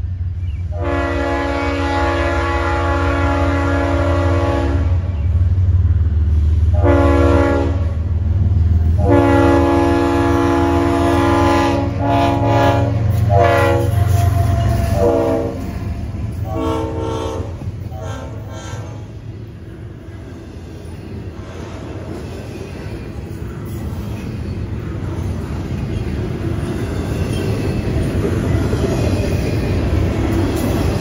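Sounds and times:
locomotive rumbling past: 0:00.0 - 0:31.0
locomotive air horn blasts: 0:00.7 - 0:05.1, 0:06.7 - 0:08.0, 0:09.0 - 0:19.1
freight cars rolling by: 0:04.9 - 0:31.0.

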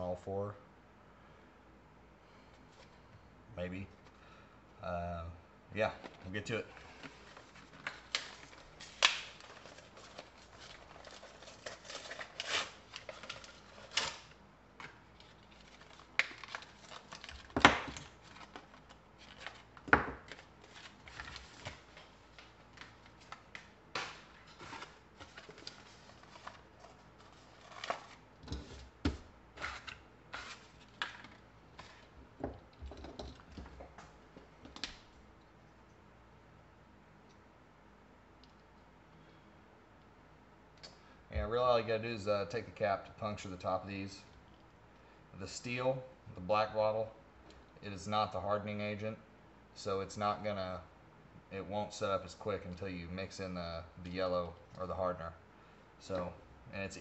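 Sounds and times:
packaging rustling and tearing: 0:07.1 - 0:28.9, 0:29.6 - 0:32.1.

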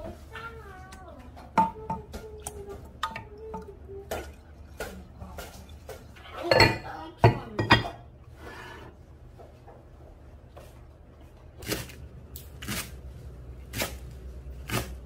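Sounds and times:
spoon knocking against pot: 0:01.5 - 0:04.4.

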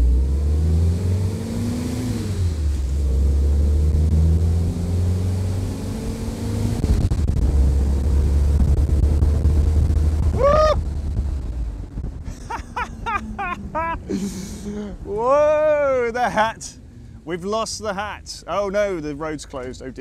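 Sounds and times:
car engine accelerating through gears: 0:00.0 - 0:12.2
wind noise: 0:06.7 - 0:15.6.

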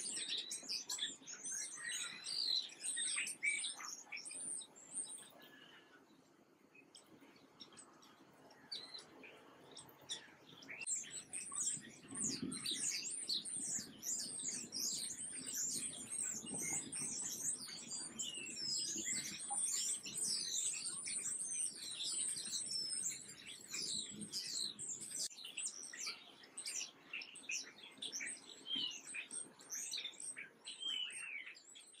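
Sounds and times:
small birds chirping: 0:00.0 - 0:32.0.

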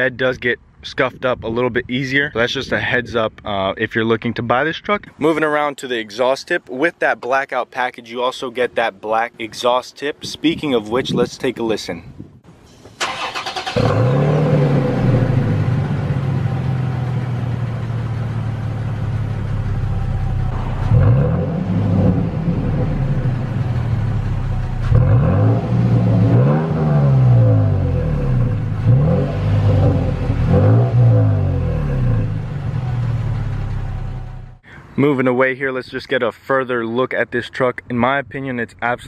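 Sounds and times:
engine idling and revving: 0:13.0 - 0:34.6.

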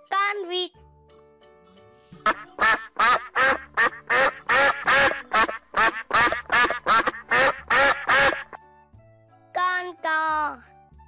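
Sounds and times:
duck quacking: 0:02.2 - 0:08.6.

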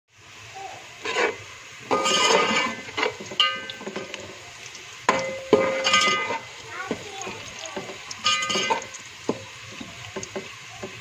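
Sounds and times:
onions frying in oil: 0:00.1 - 0:11.0
metal spoon scraping steel pot: 0:01.0 - 0:03.9, 0:05.1 - 0:06.5, 0:07.8 - 0:08.9.

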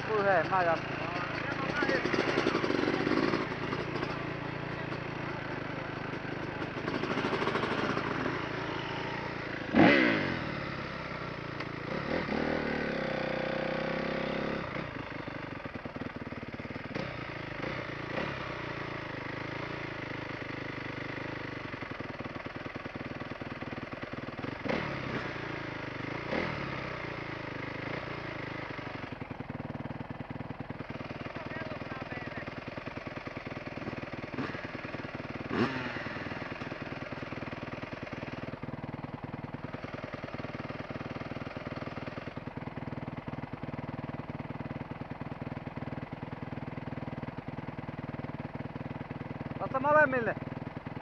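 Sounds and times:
dirt bike engine revving: 0:00.0 - 0:15.4, 0:16.7 - 0:21.6, 0:24.4 - 0:30.0, 0:30.7 - 0:38.7.

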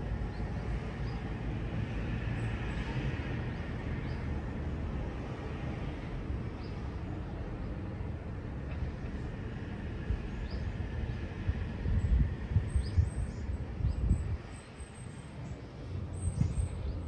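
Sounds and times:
wind buffeting microphone: 0:09.6 - 0:17.0.

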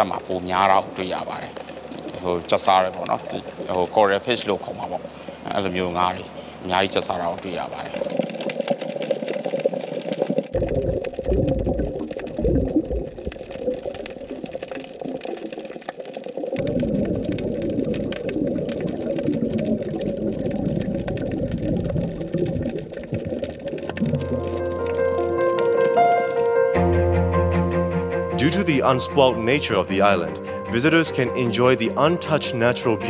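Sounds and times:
muffled underwater water noise: 0:00.0 - 0:26.0
low underwater drone: 0:10.5 - 0:27.8.

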